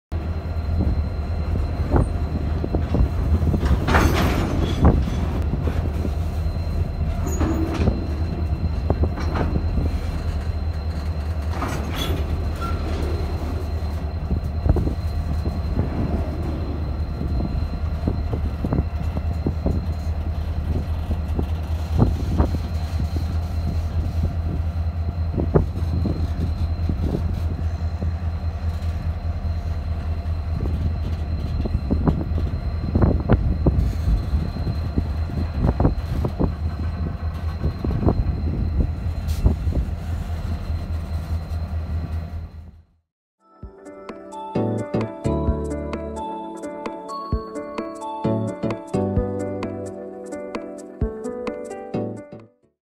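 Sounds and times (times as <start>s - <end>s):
locomotive engine rumble: 0.1s - 42.9s
wheels screeching: 0.5s - 42.6s.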